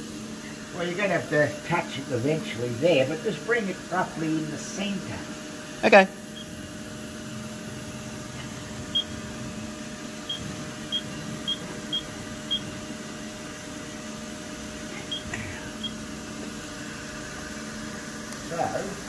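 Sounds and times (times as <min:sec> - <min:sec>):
machine humming: 0:00.0 - 0:19.0
high electronic beeps: 0:08.9 - 0:09.2, 0:10.3 - 0:12.7.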